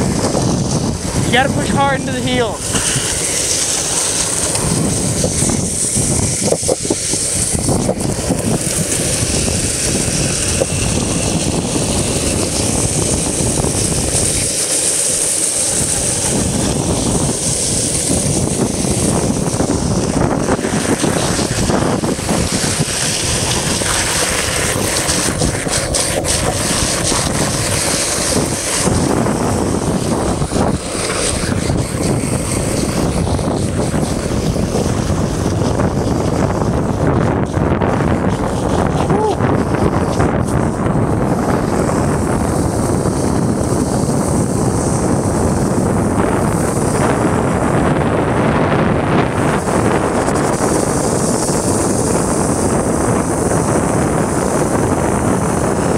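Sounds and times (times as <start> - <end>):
wheels rolling over asphalt: 0.0 - 55.9
wind noise on microphone: 0.0 - 55.9.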